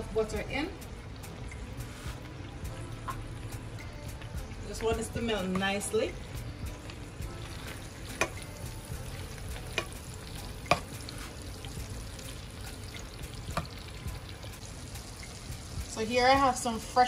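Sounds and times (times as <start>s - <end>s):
butter sizzling in a skillet: 0.0s - 17.0s
spatula knocking against pan: 10.6s - 11.0s.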